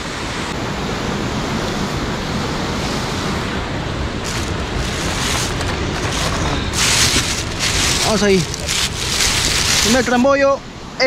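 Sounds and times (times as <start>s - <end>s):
surf washing against rocks: 3.9s - 10.6s.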